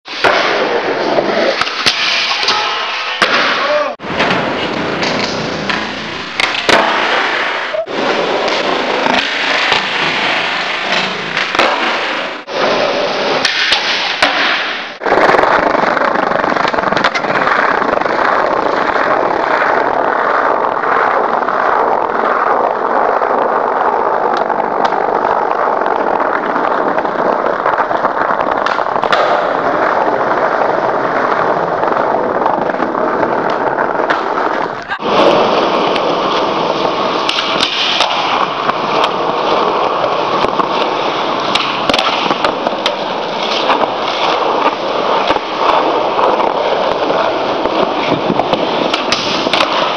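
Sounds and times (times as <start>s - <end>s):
skateboard wheels rolling on pavement: 0.0s - 49.9s
skateboard clacks: 0.1s - 49.9s.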